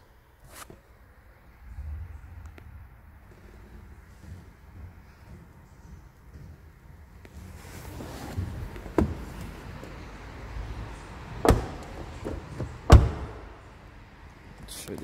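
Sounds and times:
rustling and shuffling: 1.7s - 13.6s
car door thumping shut: 8.9s - 9.5s, 11.4s - 13.6s
car door click: 11.4s - 13.6s.

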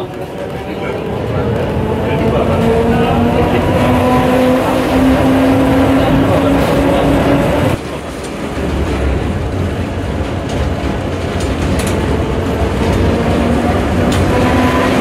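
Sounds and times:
tram motor whine: 0.0s - 15.0s
wheels rumbling on rails: 0.0s - 15.0s
sharp clicks of wheels: 9.9s - 14.4s.

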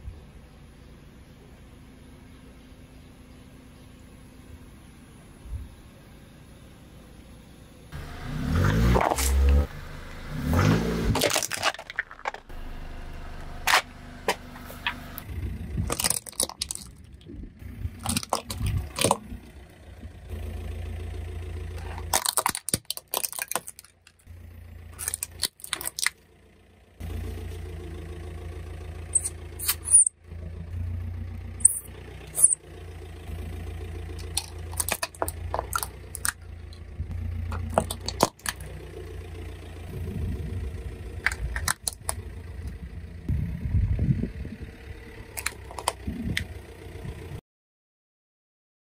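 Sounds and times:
car engine rumble: 0.0s - 47.4s
plastic toys crushed by car tyre: 8.9s - 9.6s, 11.0s - 12.6s, 15.8s - 17.4s, 18.0s - 19.3s, 21.7s - 24.3s, 25.0s - 26.2s, 34.1s - 36.8s, 37.5s - 38.7s, 41.2s - 42.2s, 45.4s - 46.0s
short high squeaks: 29.1s - 30.2s, 31.6s - 32.6s.

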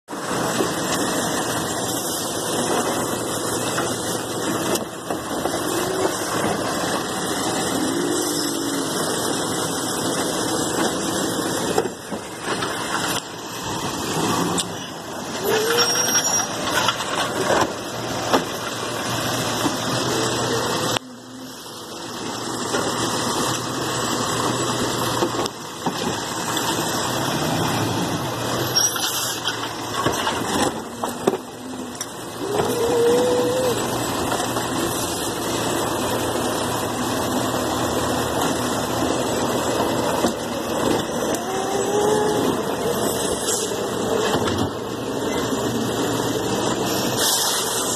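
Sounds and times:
garbage truck diesel engine running: 0.1s - 47.9s
rising and falling whines: 0.3s - 11.8s, 30.8s - 35.2s, 38.7s - 44.3s.

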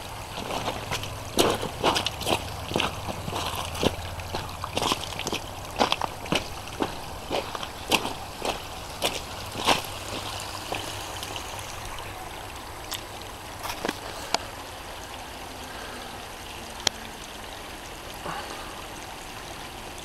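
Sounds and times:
stream running over stones: 0.0s - 20.0s
stones knocking underfoot: 0.4s - 10.9s.

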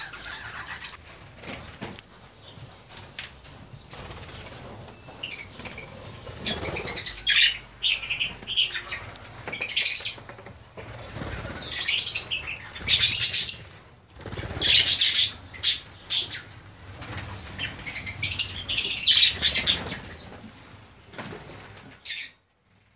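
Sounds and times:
lovebirds chirping: 0.0s - 22.4s
wings flapping: 3.9s - 7.4s, 8.2s - 15.9s, 16.9s - 22.0s.

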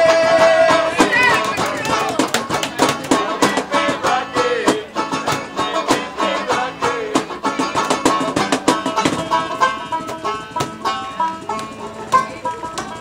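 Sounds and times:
strummed acoustic guitar: 0.0s - 13.0s.

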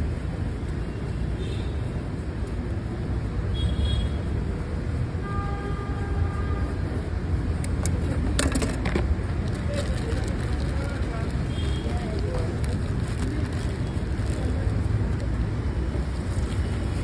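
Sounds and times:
street traffic rumble: 0.0s - 17.0s
sharp clicks: 7.6s - 8.8s.

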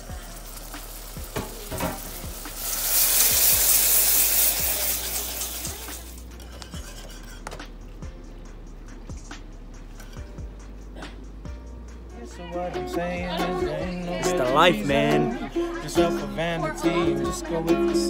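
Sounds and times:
loud sizzling hiss: 0.0s - 12.0s
whisk clinking against pan: 0.3s - 7.5s.

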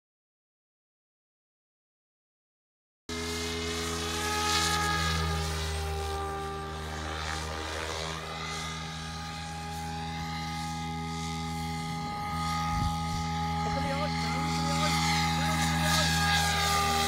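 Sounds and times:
model helicopter rotor drone: 3.1s - 17.0s.

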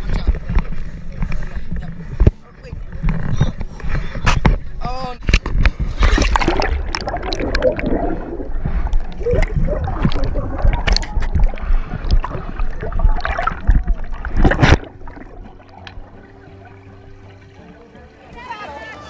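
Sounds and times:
pool water splashing and gurgling: 4.8s - 19.0s.

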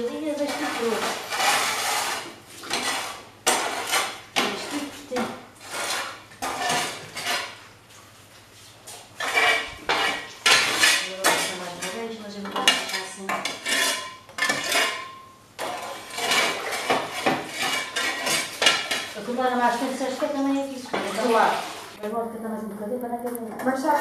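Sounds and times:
metal scraper scraping brick: 0.4s - 5.0s, 5.6s - 7.6s, 9.2s - 12.1s, 12.7s - 19.4s.

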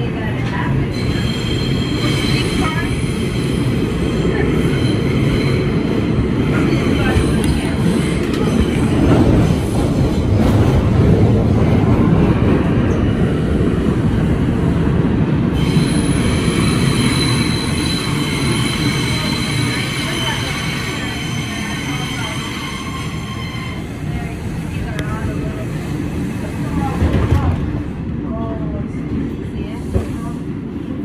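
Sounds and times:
train wheels rumbling on track: 0.0s - 31.0s
wheels squealing on rail: 0.8s - 9.3s, 15.6s - 24.2s.

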